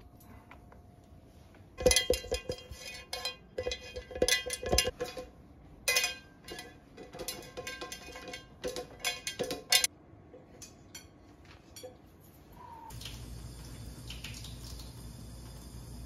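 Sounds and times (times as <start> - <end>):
metal pan knocking and clanking: 1.8 - 5.3.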